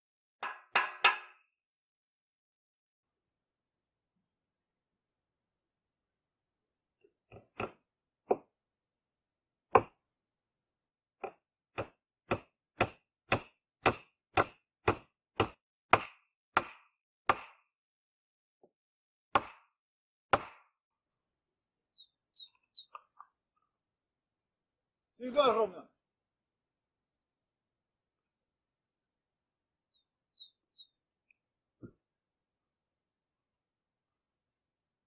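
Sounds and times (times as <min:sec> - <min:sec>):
hammer striking wooden pole: 0:00.4 - 0:01.5, 0:07.3 - 0:08.5, 0:09.7 - 0:10.0, 0:11.2 - 0:17.7, 0:19.3 - 0:20.8.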